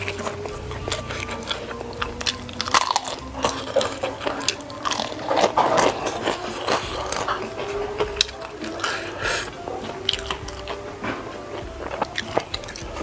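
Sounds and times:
slurping noodles: 0.0 - 13.0
wet chewing with smacks: 0.0 - 13.0.

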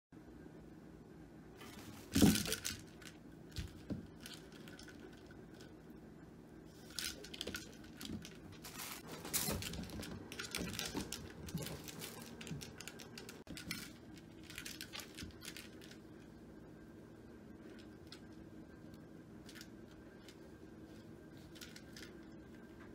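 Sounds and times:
kitten playing with feather toy: 6.7 - 16.2.

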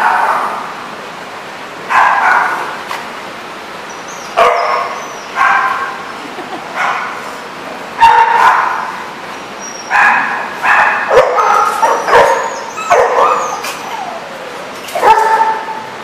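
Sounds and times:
dogs barking and yipping: 1.9 - 2.8, 3.9 - 7.3, 8.0 - 16.0.

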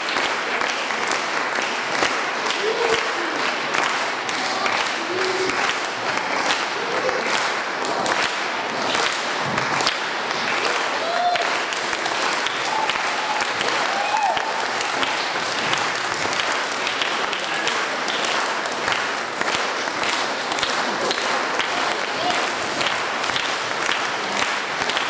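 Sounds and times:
audience applauding: 0.0 - 25.0
faint voices: 2.2 - 9.6.

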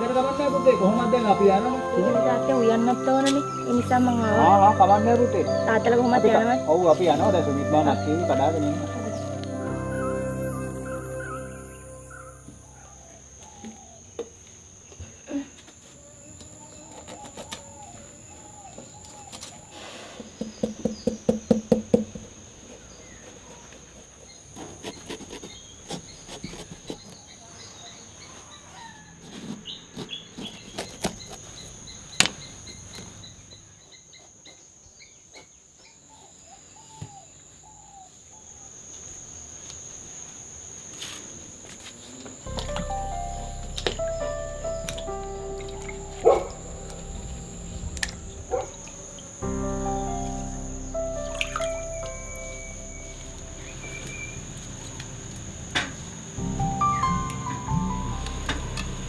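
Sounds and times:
high-pitched insect drone: 0.0 - 15.5, 38.6 - 59.0.

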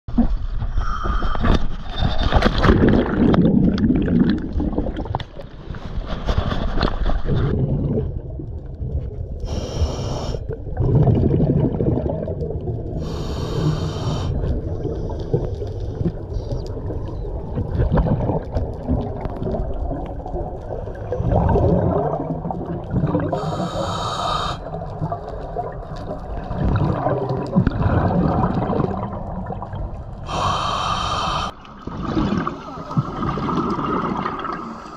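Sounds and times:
bubbles gurgling: 2.0 - 5.7, 7.2 - 9.4, 10.4 - 23.8, 24.6 - 30.4, 31.5 - 34.9
diver inhaling through regulator: 9.4 - 10.6, 13.0 - 14.5, 23.3 - 24.7, 30.2 - 31.6.

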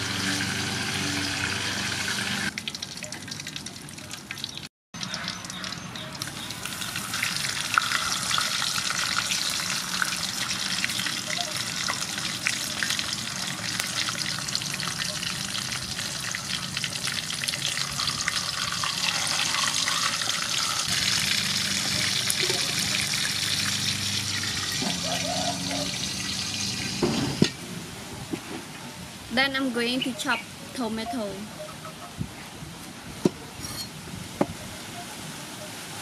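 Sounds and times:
fish frying in oil sizzle: 0.0 - 27.4.

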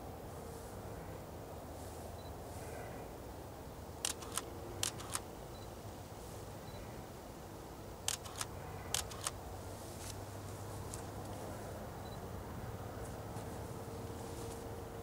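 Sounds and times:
camera shutter double click: 4.0 - 5.2, 8.1 - 9.4.

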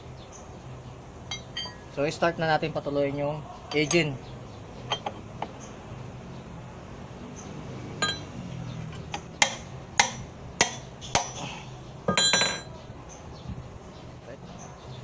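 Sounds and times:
metal tools clinking: 1.3 - 2.0, 4.8 - 5.2, 8.0 - 8.3, 12.1 - 12.7.

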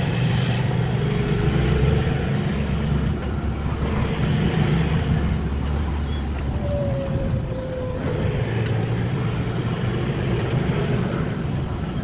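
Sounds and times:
car engine hum: 0.0 - 12.0
tyre and road noise: 0.0 - 12.0.

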